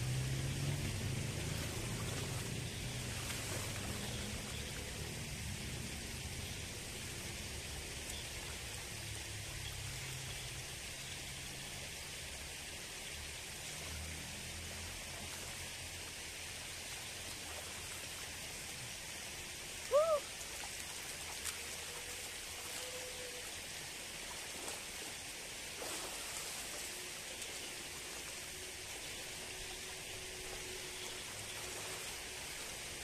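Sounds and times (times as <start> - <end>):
water splashing by hand: 0.0 - 5.1, 24.2 - 28.2
water flowing in channel: 0.0 - 33.0
hooting call: 19.9 - 20.3.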